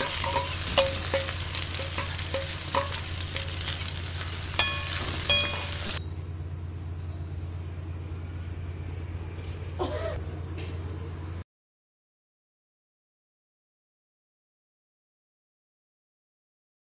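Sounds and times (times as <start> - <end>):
food sizzling in a pan: 0.0 - 6.0
metal spoon scraping a pan: 0.0 - 6.0
low steady hum: 0.0 - 11.4.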